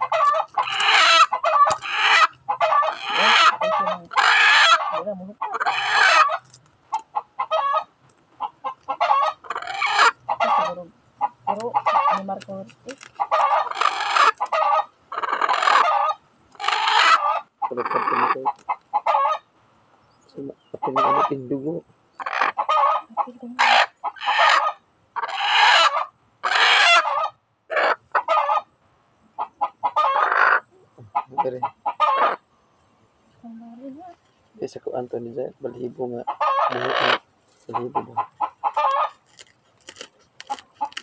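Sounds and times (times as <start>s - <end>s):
hen squawking: 0.0s - 19.5s, 20.8s - 21.5s, 35.7s - 39.2s.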